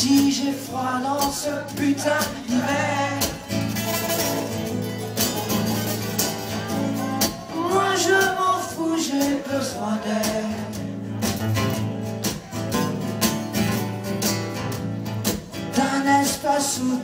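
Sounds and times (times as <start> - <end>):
man singing: 0.0 - 4.6, 6.5 - 11.2, 15.6 - 17.0
live rock band playing: 0.0 - 17.0.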